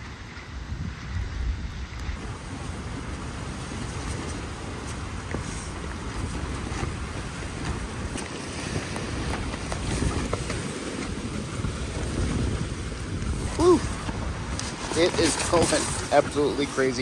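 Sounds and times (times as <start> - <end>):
storm wind gusting: 0.0 - 17.0
wind rumble on microphone: 0.0 - 17.0
rain spattering on fabric: 0.7 - 17.0.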